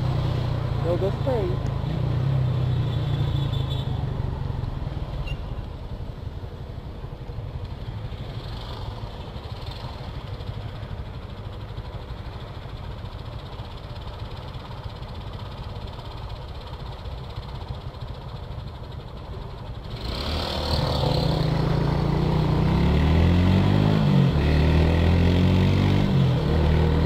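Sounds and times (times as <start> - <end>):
motorcycle engine idling: 5.8 - 19.9.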